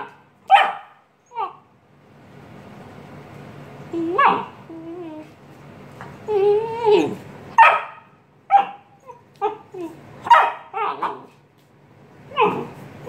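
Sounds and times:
puppy barking high: 0:00.0 - 0:01.6, 0:04.1 - 0:04.6, 0:07.5 - 0:11.4
puppy yowling: 0:00.0 - 0:01.6, 0:03.9 - 0:05.3, 0:06.2 - 0:11.4, 0:12.3 - 0:12.8.

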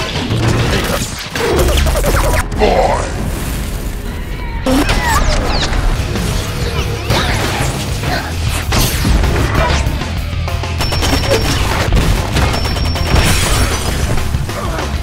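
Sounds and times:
film music score: 0:00.0 - 0:15.0
gunfire: 0:10.8 - 0:14.4
explosions and crashes: 0:10.8 - 0:14.5.

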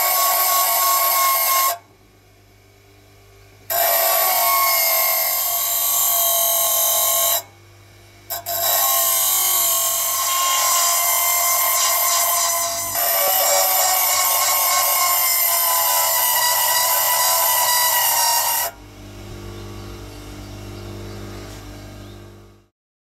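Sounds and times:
bench grinder grinding metal: 0:00.0 - 0:01.8, 0:03.7 - 0:07.5, 0:08.3 - 0:22.4
low hum: 0:18.8 - 0:22.7.

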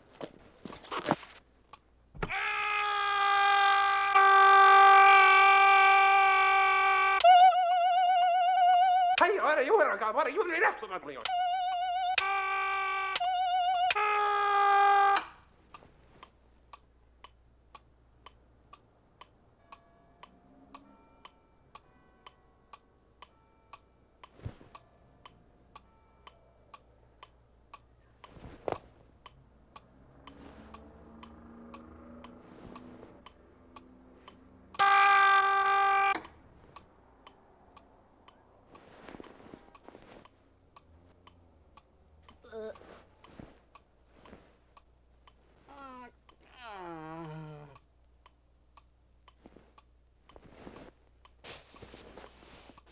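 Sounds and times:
soprano singing from tv: 0:11.3 - 0:12.4
clock ticking: 0:15.2 - 0:52.9.

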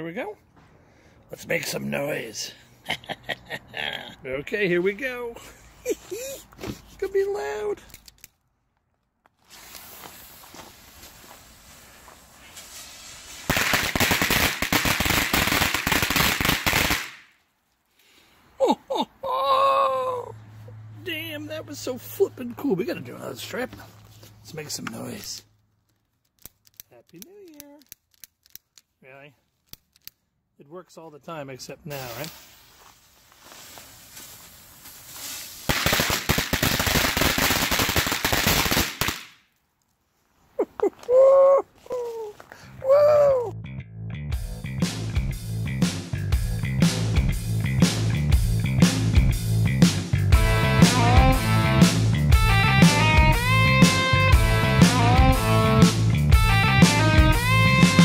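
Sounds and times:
firecrackers banging: 0:09.6 - 0:17.3, 0:35.2 - 0:39.4.

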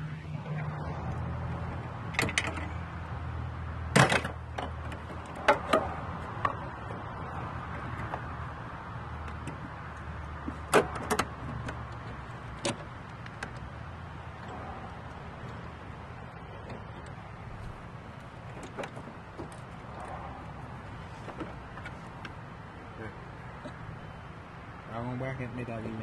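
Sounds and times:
clicks and knocks of parts handled: 0:01.7 - 0:02.8, 0:09.2 - 0:13.7.

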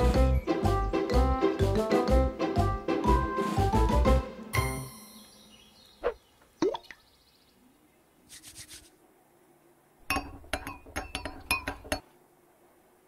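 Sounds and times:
cartoon plops: 0:06.6 - 0:07.0.

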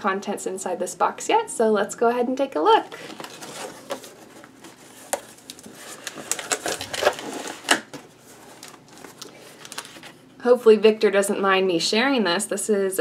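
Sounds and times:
cardboard crackling: 0:02.9 - 0:10.2.

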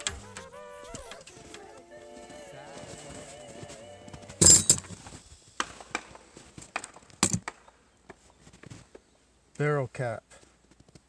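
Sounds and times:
parts and tools clattering: 0:04.4 - 0:05.2.

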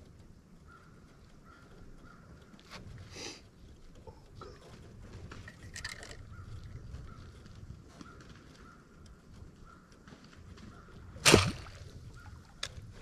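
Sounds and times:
fish splashing in water: 0:11.2 - 0:12.0.

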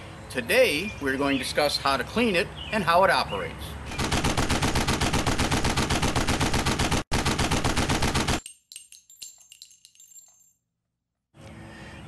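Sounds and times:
machine-gun fire: 0:03.9 - 0:08.4
metallic clinks ringing: 0:08.4 - 0:10.7.

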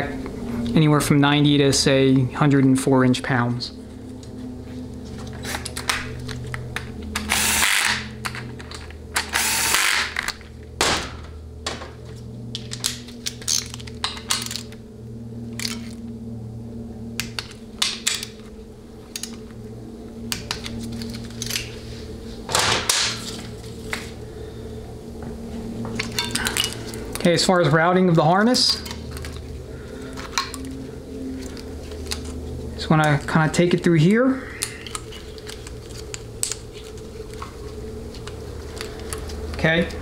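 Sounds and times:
power ratchet running: 0:07.2 - 0:08.2, 0:09.2 - 0:10.2.

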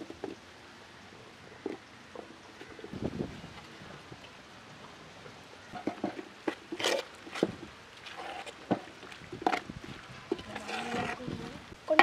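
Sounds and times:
metal spatula scraping pot: 0:10.4 - 0:11.3.

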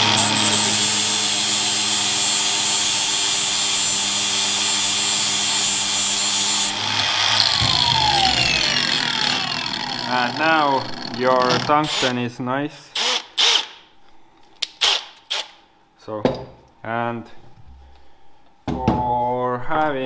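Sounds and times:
electric grinder motor: 0:00.0 - 0:12.1.

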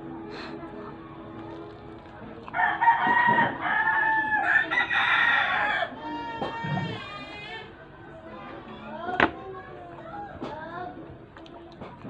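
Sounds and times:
rooster crowing: 0:02.6 - 0:06.2.

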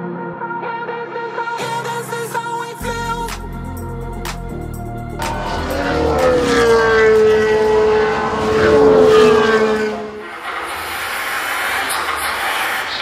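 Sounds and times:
race car engine passing by: 0:05.2 - 0:13.0.

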